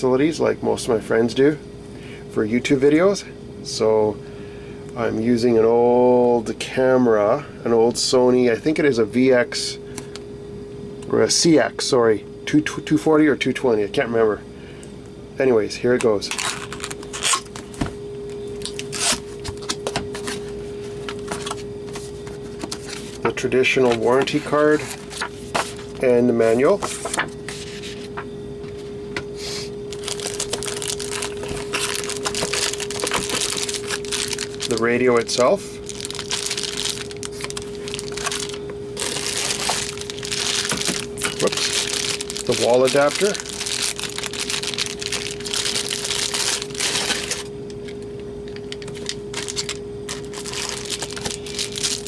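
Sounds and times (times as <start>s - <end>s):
steady hum: 0.0s - 52.0s
plastic bag crinkling: 16.2s - 17.7s, 29.9s - 47.5s, 48.6s - 52.0s
paper and cardboard rustling: 23.8s - 26.0s, 26.8s - 28.2s, 30.0s - 35.0s, 35.9s - 47.4s, 49.0s - 52.0s.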